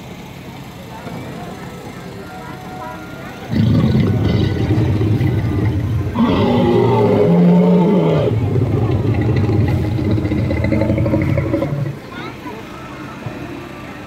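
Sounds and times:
recorded dinosaur roar: 3.5 - 12.0.

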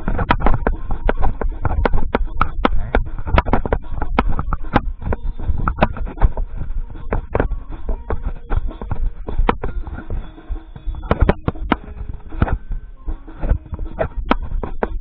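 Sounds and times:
drumstick taps on tenor drums: 0.0 - 10.2, 13.2 - 15.0
low rumble: 0.0 - 15.0.

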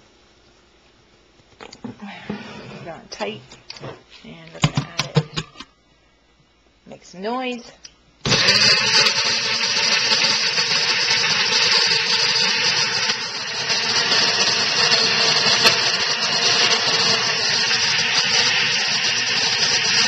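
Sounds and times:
blender motor whirring: 8.2 - 20.0.

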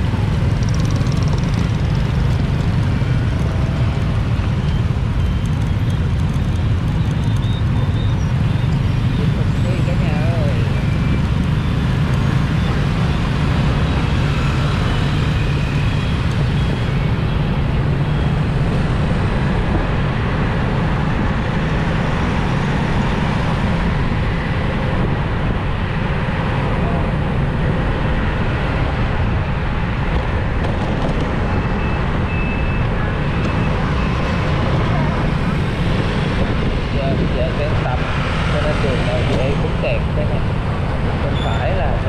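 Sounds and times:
street traffic: 0.0 - 42.0
heavy low rumble: 16.1 - 42.0.

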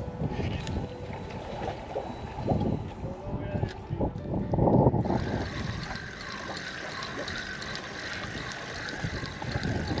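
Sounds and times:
light wind: 0.0 - 10.0
fishing reel whirring: 4.8 - 10.0
water washing: 5.1 - 10.0.

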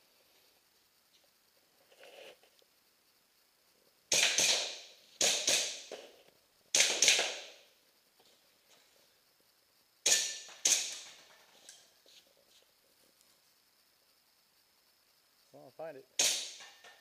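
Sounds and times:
airsoft pistol cracks: 4.1 - 5.9, 6.7 - 7.6, 10.0 - 11.2, 16.2 - 16.9.

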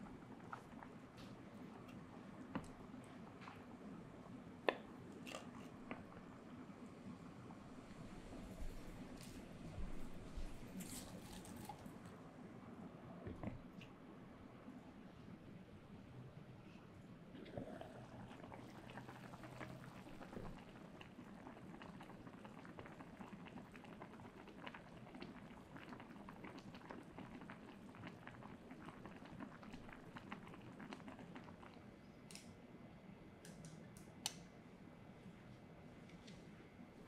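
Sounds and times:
soup bubbling in pot: 0.0 - 11.2, 17.3 - 32.0.

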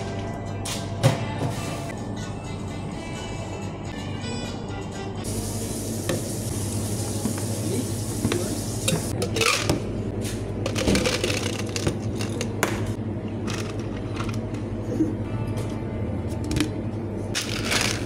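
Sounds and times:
ice cubes clattering into cup: 17.4 - 18.0.

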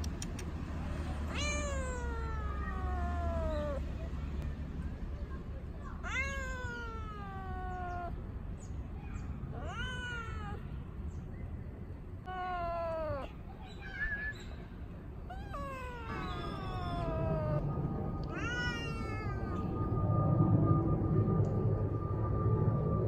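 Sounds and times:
cat meowing: 1.2 - 3.9, 6.0 - 8.2, 9.5 - 10.7, 12.2 - 13.5, 15.2 - 17.6, 18.2 - 19.8.

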